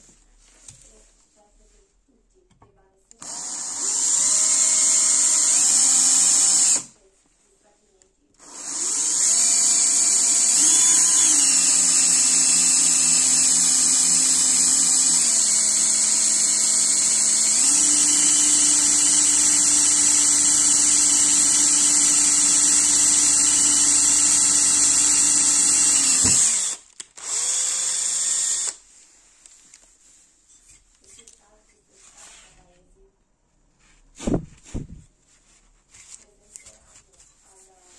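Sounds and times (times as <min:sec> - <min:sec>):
electric drill boring through metal: 0:03.2 - 0:06.9, 0:08.4 - 0:28.8.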